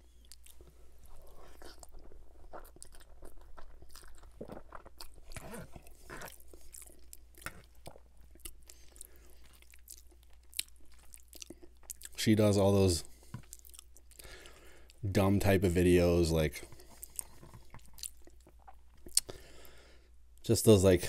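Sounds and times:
chewing food: 0:00.0 - 0:12.2, 0:13.1 - 0:15.0, 0:16.6 - 0:19.6
wet mouth clicks and smacks: 0:17.0 - 0:19.3.

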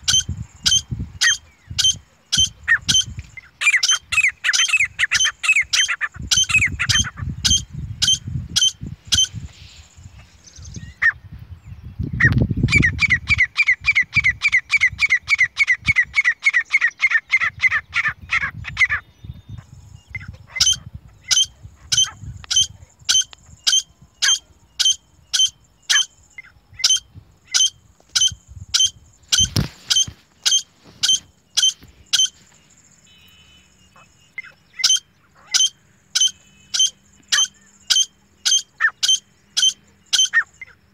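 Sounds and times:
bird sharp high calls: 0:00.0 - 0:40.9.

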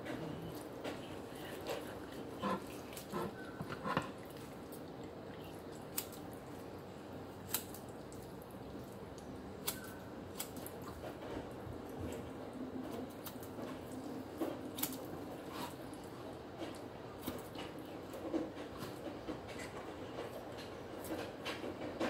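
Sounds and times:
wet squelching of raw chicken: 0:00.0 - 0:18.3
kitchen scissors snipping: 0:05.9 - 0:06.2, 0:09.6 - 0:10.7.

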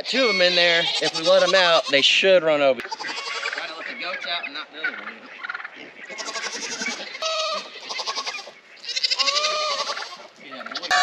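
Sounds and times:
goats bleating: 0:00.0 - 0:03.8, 0:06.1 - 0:11.0.

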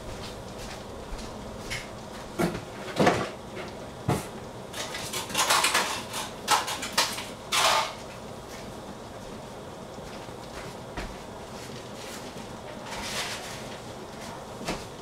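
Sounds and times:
steady low hiss: 0:00.0 - 0:04.9, 0:06.3 - 0:15.0.

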